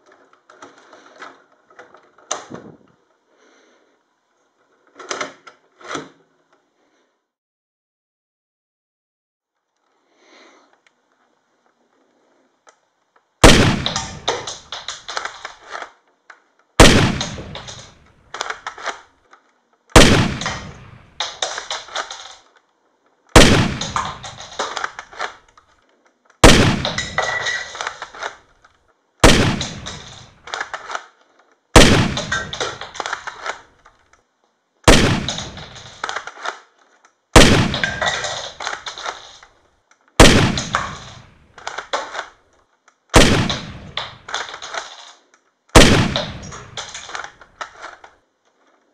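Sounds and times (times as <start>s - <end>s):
clatter and small clicks: 12.6s - 48.9s
toy shotgun shots: 13.4s - 15.6s, 16.8s - 19.0s, 23.3s - 25.4s, 31.8s - 33.6s, 37.4s - 39.4s.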